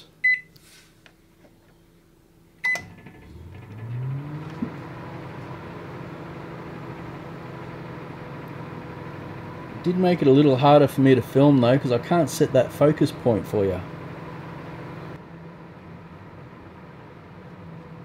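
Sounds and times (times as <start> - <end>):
microwave keypad beeping: 0.2 - 0.5, 2.6 - 2.9
microwave running hum: 1.3 - 18.0.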